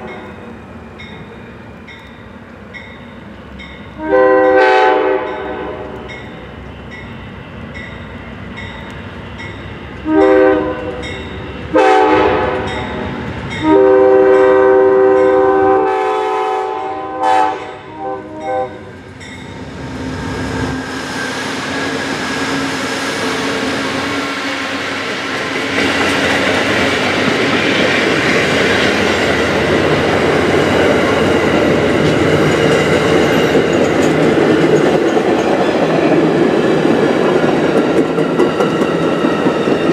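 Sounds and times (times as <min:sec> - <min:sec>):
crossing bell dinging: 0:00.0 - 0:04.6, 0:05.3 - 0:09.8, 0:10.7 - 0:11.6, 0:12.6 - 0:15.6, 0:18.3 - 0:19.6
train passing: 0:00.0 - 0:39.9
locomotive air horn: 0:04.0 - 0:06.1, 0:10.0 - 0:11.1, 0:11.7 - 0:12.9, 0:13.6 - 0:18.9
wheels rumbling on rail joints: 0:18.0 - 0:39.9.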